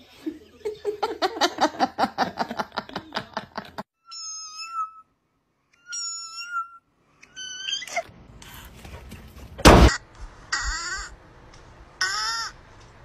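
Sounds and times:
cat meowing: 4.0s - 5.1s, 5.8s - 8.1s.

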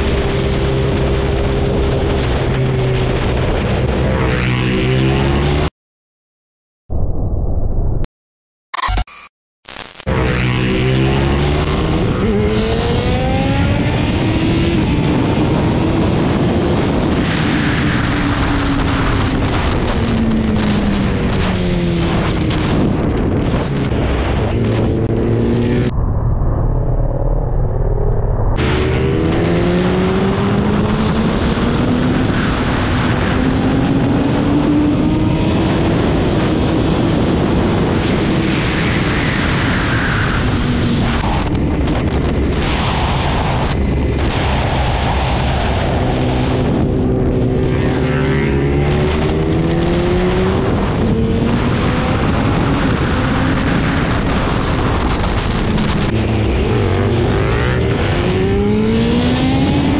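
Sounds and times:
wind rush on microphone: 0.0s - 5.7s, 10.8s - 59.9s
motorcycle engine revving: 10.1s - 25.9s, 28.6s - 38.4s, 45.8s - 59.9s.

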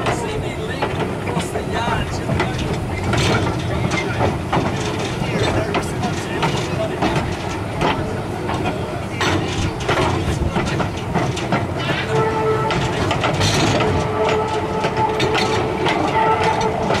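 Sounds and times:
train running gear rumble: 0.0s - 17.0s
wheels knocking on rails: 0.0s - 17.0s
steady squealing tone: 11.8s - 17.0s.

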